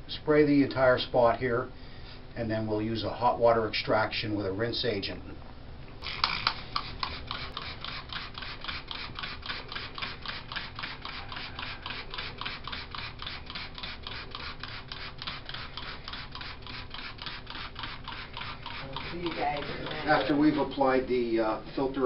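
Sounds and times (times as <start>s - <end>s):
trigger spray bottle spraying: 6.0s - 20.8s.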